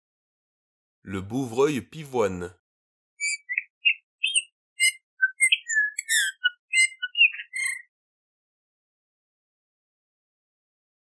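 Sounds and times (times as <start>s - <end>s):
bird chirping and whistling: 3.2s - 7.9s.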